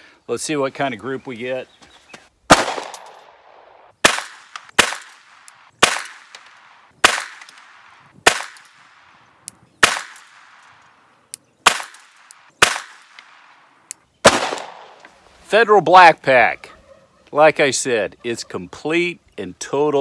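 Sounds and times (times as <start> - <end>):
pistol shots with echo: 2.5 - 8.7, 9.8 - 10.6, 11.6 - 13.4, 14.2 - 15.0.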